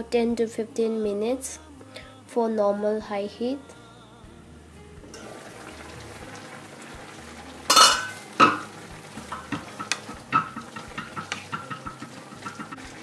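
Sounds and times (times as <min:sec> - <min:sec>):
vegetables simmering: 0:05.1 - 0:13.0
spatula clattering on a wok: 0:07.7 - 0:13.0
wooden spatula scraping a wok: 0:09.2 - 0:13.0.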